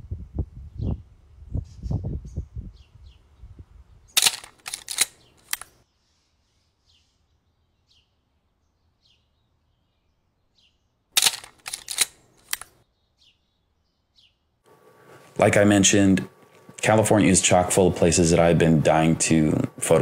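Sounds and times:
camera shutter clicks: 4.2 - 5.8, 11.2 - 12.8
faint bird chirps: 5.2 - 11.0.

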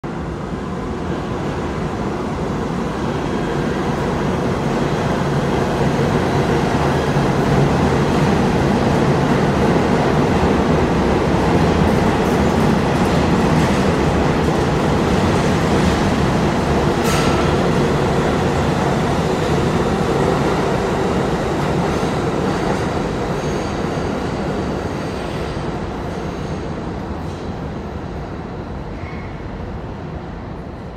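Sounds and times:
subway train wheels rumbling: 0.0 - 30.9
train wheel squeal: 28.9 - 29.6.

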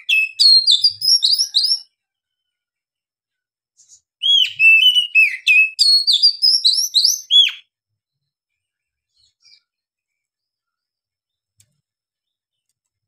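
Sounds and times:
bird singing whistled notes: 0.0 - 1.9, 3.8 - 7.7.

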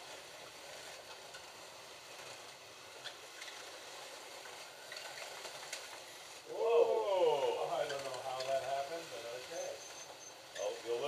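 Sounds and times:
slot car motors hissing: 7.2 - 11.0.

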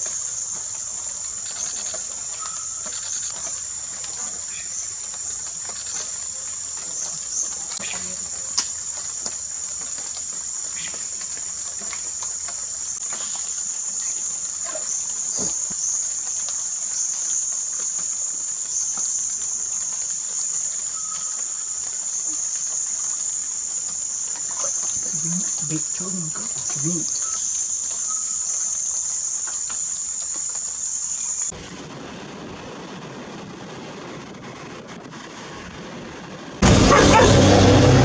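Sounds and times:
insect chorus drone: 0.0 - 38.0.

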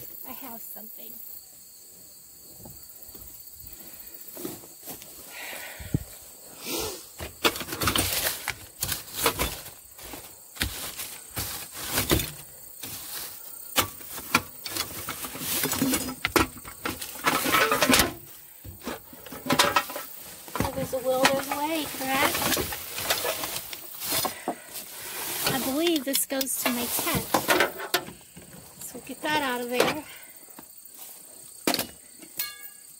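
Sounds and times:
rustling: 3.8 - 30.1
objects knocking and clattering: 7.2 - 30.2.

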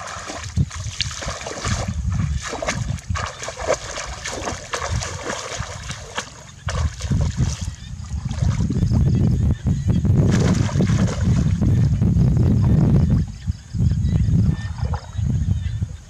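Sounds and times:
legs wading through water: 0.0 - 9.1, 10.2 - 12.0.

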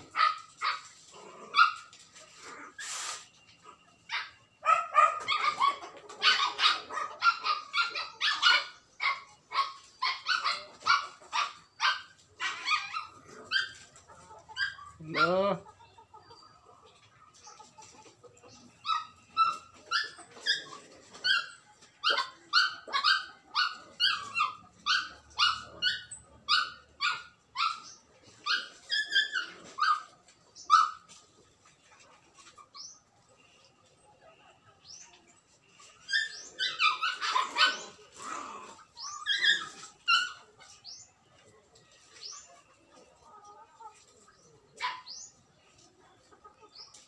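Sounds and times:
dog barking: 4.1 - 13.7.

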